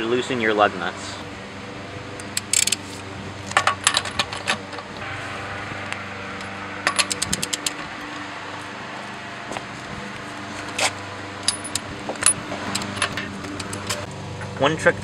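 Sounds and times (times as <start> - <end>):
socket clinking on nut: 2.2 - 2.8, 6.8 - 7.8, 11.4 - 14.0
ratchet wrench clicking: 2.2 - 2.9, 6.8 - 7.8, 11.4 - 14.1.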